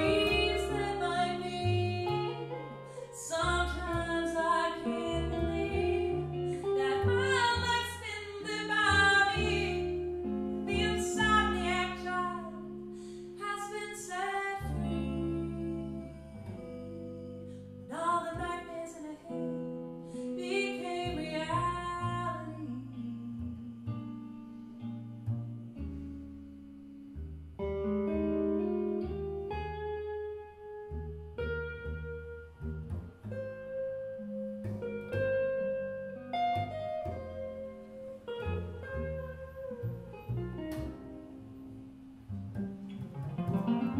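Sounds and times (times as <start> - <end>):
woman singing: 0.0 - 24.3
electric guitar: 0.0 - 43.9
plucked double bass: 0.0 - 43.9.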